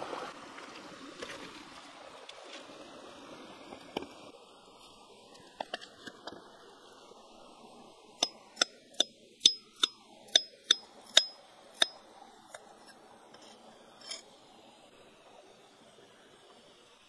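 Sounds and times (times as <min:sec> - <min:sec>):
knife blade striking stone: 0:08.2 - 0:12.0.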